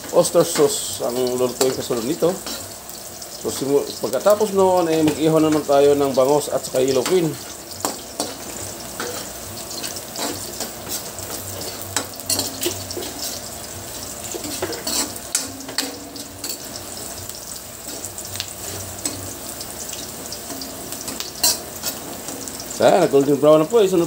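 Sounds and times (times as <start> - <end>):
garlic sizzling in oil: 0.0 - 24.0
spatula scraping a wok: 0.5 - 3.7, 7.0 - 22.8.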